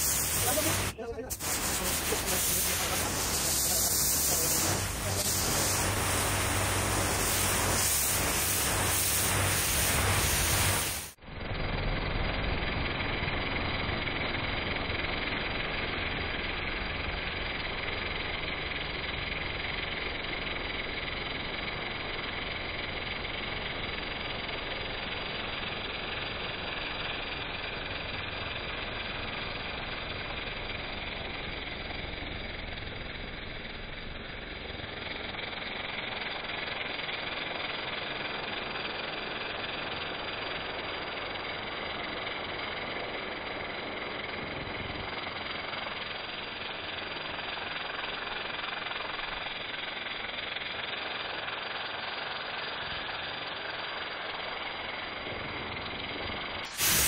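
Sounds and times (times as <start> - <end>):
water jet hissing on stone: 0.0 - 11.2, 35.0 - 57.0.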